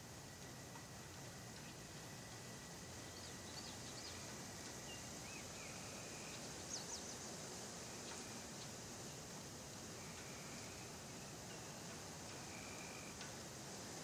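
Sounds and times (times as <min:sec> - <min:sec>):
steady background hiss: 0:00.0 - 0:14.0
bird chirps: 0:03.0 - 0:07.2.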